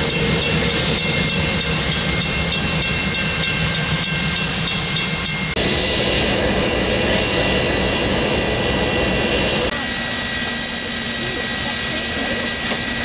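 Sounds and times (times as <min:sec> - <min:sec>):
crossing warning bell ringing: 0:00.0 - 0:07.5, 0:09.7 - 0:13.0
diesel locomotive running past: 0:00.0 - 0:13.0
steam hissing: 0:04.7 - 0:13.0.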